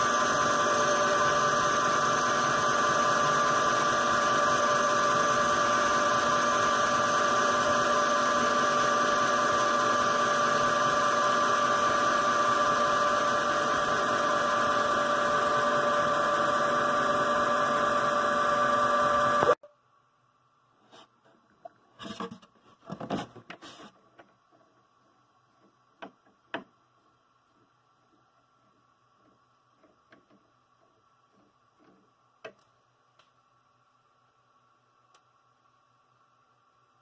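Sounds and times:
lathe machine whine: 0.0 - 19.6.

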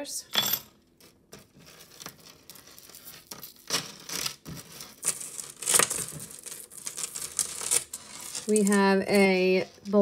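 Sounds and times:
necklace chains clinking and scraping: 5.0 - 10.0.

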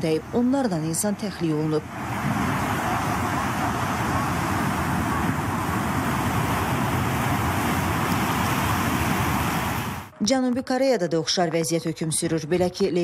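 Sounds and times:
floodwater rushing: 1.5 - 10.1.

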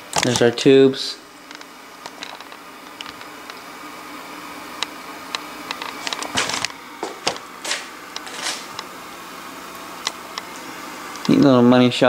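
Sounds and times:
tube tv hum: 0.0 - 12.0
rustling scrapes: 5.9 - 8.8.

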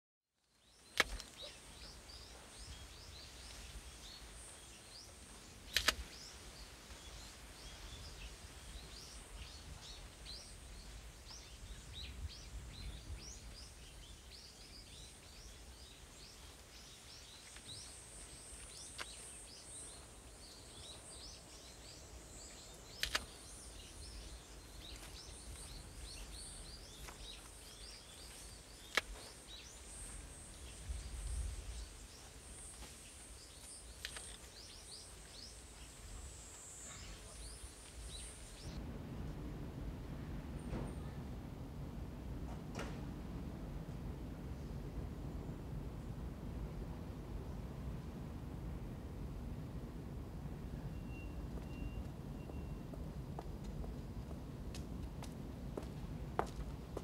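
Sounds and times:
small birds chirping: 0.4 - 38.8
sharp clicks: 0.9 - 1.4, 5.7 - 6.0, 22.9 - 23.4
low steady rumble: 38.5 - 57.0.

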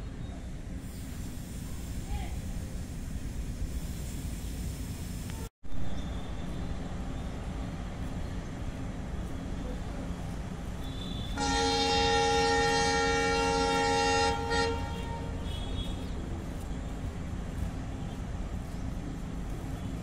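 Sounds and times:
train coaches rumbling past: 0.0 - 20.0
train horn blast: 10.8 - 16.1
train horn short toot: 10.8 - 16.2.

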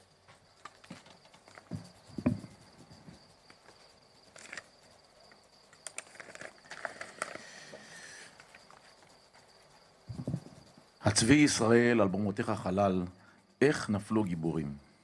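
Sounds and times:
knock on microphone: 1.7 - 2.5.

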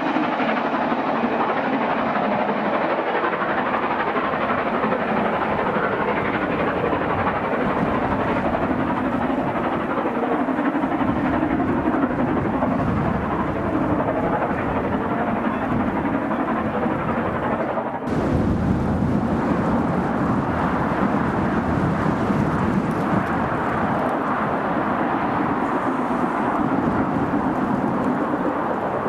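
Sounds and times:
steam locomotive working hard: 18.1 - 29.0.

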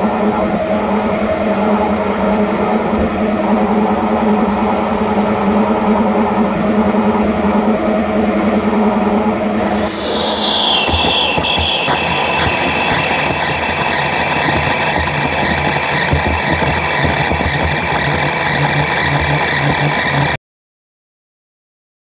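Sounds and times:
high tone of tool cutting steel: 9.6 - 16.0
lathe machine noise: 9.6 - 20.4.

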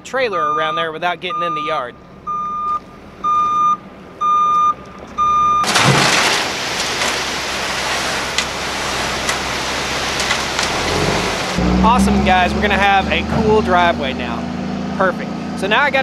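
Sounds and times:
truck engine running: 0.0 - 16.0
reversing alarm beeping: 0.4 - 5.7
gravel pouring from dump bed: 5.6 - 11.6.

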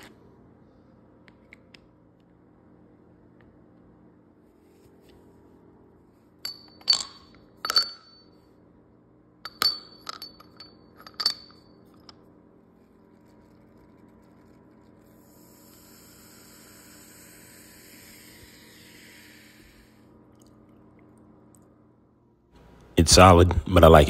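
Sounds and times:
stones clinking in a glass: 6.4 - 8.3, 9.4 - 12.2.

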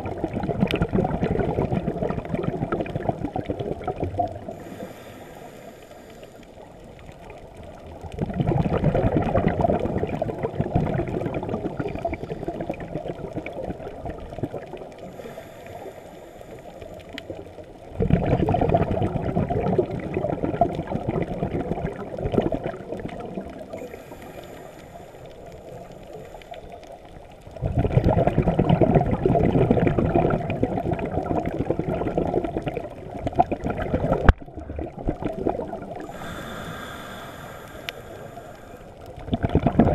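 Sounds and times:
rush of exhaled bubbles: 0.0 - 39.9
regulator hiss on inhale: 4.4 - 6.9, 11.8 - 12.7, 15.0 - 17.4, 23.7 - 27.3, 36.0 - 39.2.

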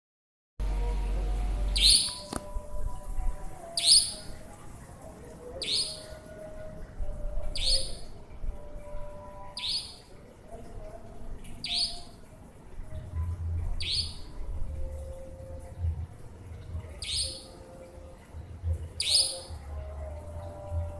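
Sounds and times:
nightjar calling: 1.8 - 2.3, 3.8 - 4.3, 5.6 - 6.2, 7.5 - 8.1, 9.5 - 10.1, 11.6 - 12.2, 13.8 - 14.3, 17.0 - 17.5, 19.0 - 19.6.

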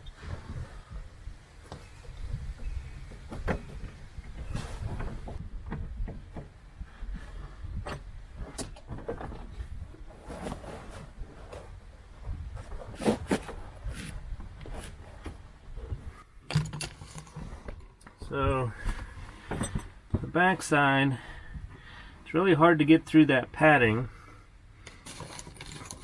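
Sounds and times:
tools clicking and knocking: 16.5 - 17.9.

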